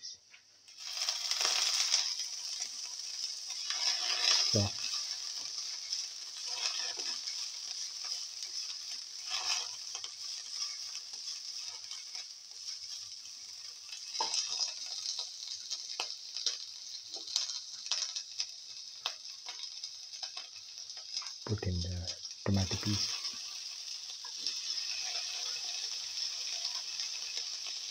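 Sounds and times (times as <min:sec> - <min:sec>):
vegetables sizzling in hot oil: 0:00.5 - 0:27.9
spatula scraping a pan: 0:00.8 - 0:16.6.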